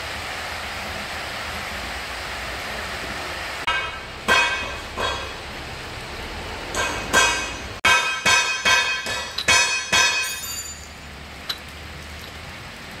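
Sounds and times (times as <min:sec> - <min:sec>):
metal clinks ringing: 0:06.8 - 0:11.1.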